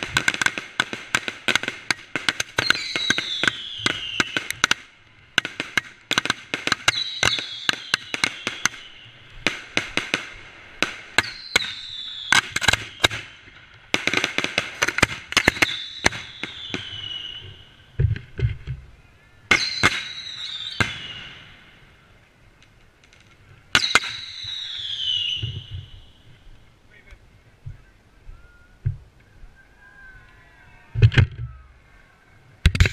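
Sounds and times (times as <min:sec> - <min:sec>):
fireworks bangs and crackles: 0:00.0 - 0:18.9, 0:19.5 - 0:21.8, 0:23.0 - 0:26.4
falling firework whistle: 0:02.6 - 0:04.6, 0:06.8 - 0:09.2, 0:11.2 - 0:13.4, 0:15.4 - 0:17.7, 0:19.5 - 0:21.6, 0:23.8 - 0:26.1.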